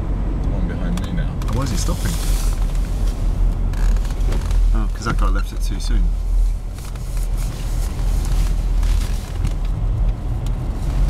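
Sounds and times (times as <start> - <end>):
car engine hum inside cabin: 0.0 - 11.0.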